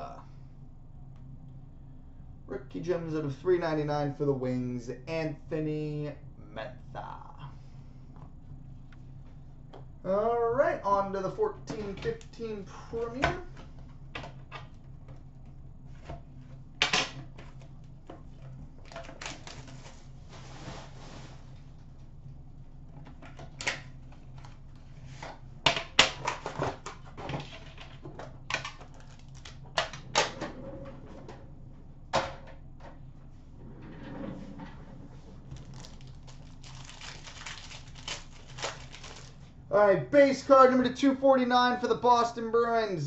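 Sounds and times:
low hum: 0.0s - 43.0s
packaging rustling: 28.8s - 29.6s, 35.4s - 39.5s.

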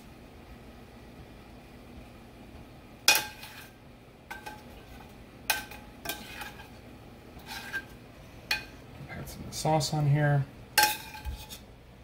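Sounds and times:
utensils clinking against dishes: 10.8s - 11.6s.

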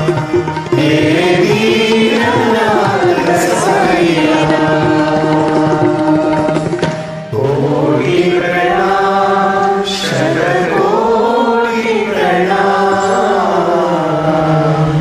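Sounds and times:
group singing devotional song: 0.0s - 15.0s.

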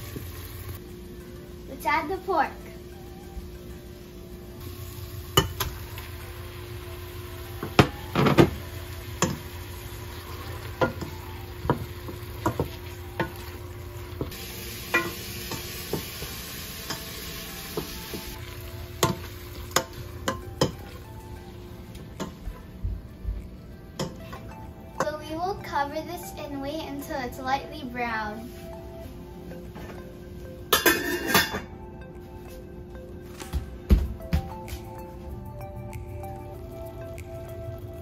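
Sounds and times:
meat sizzling in a pot: 0.0s - 3.2s, 3.9s - 21.1s.

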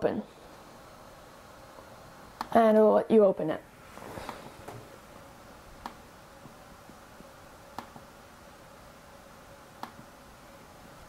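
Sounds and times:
faint steady hum: 0.0s - 11.0s
computer mouse clicks: 9.8s - 10.0s.

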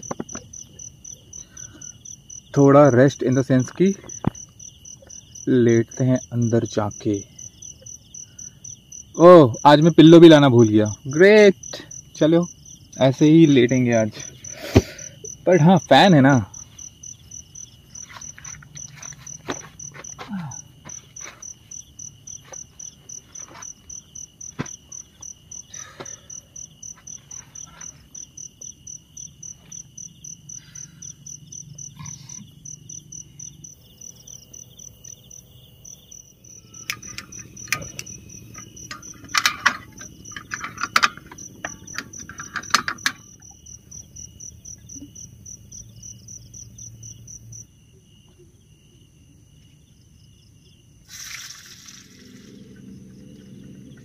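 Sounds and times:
sharp knocks and rustles: 0.0s - 0.6s, 17.9s - 26.2s, 36.5s - 43.7s
crickets chirping: 0.0s - 54.0s.

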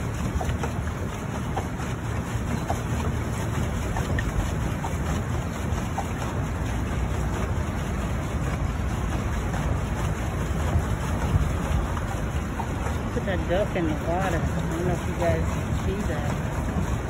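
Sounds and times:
paddle wheel splashing water: 0.0s - 17.0s
wind buffeting microphone: 0.0s - 17.0s.

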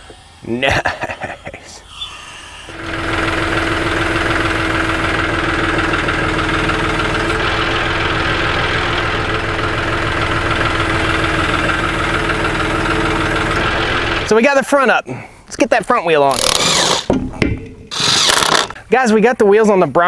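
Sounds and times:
hydraulic whine: 2.3s - 14.4s, 16.3s - 17.1s, 17.9s - 18.8s
tractor engine running: 2.7s - 14.4s.

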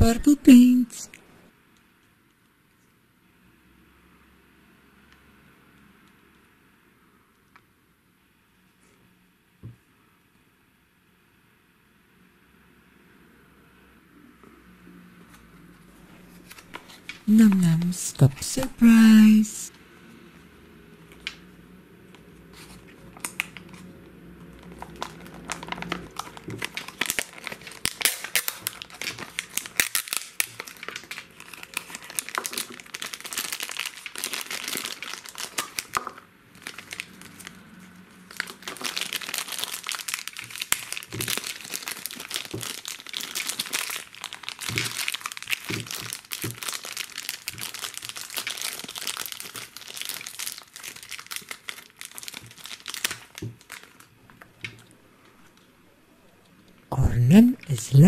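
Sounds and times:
foil wrapping crinkling: 24.6s - 37.5s, 38.3s - 54.1s.

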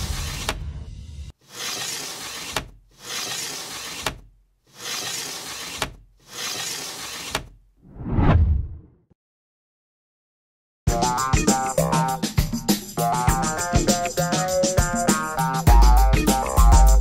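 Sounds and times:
noisy whooshes: 7.9s - 8.8s
deep whoosh into boom: 7.9s - 8.9s.

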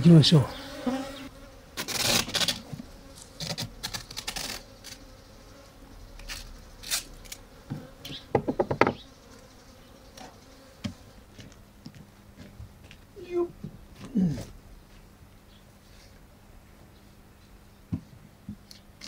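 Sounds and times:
bees buzzing: 0.0s - 11.6s
wooden box knocks and scrapes: 7.7s - 9.0s.

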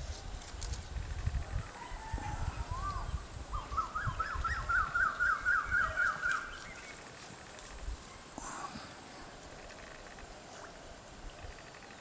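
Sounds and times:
woodpecker calling: 2.6s - 7.1s, 9.5s - 10.7s, 11.3s - 12.0s.

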